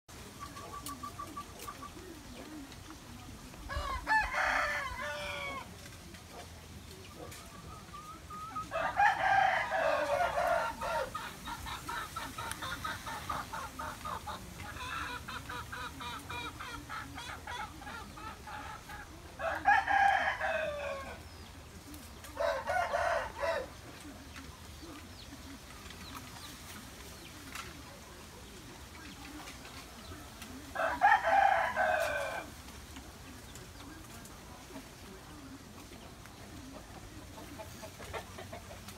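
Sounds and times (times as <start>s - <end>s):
rooster crowing: 3.7s - 5.7s, 8.7s - 11.2s, 19.4s - 21.2s, 22.4s - 23.7s, 30.8s - 32.5s
rapid clucking: 5.6s - 38.9s.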